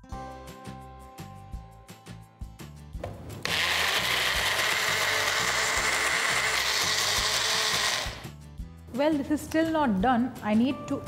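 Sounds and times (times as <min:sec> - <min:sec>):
blender motor grinding paste: 0:03.4 - 0:08.3.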